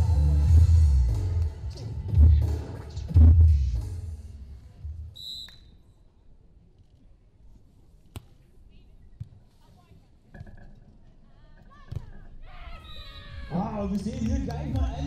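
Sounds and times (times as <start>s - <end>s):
arena music with heavy bass: 0.0s - 4.6s, 13.5s - 15.0s
referee's whistle: 5.1s - 5.8s, 12.8s - 13.4s.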